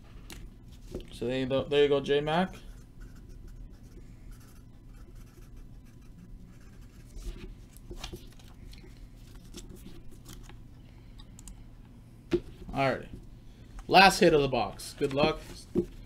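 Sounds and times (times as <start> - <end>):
pen scratching on paper: 2.6 - 7.3.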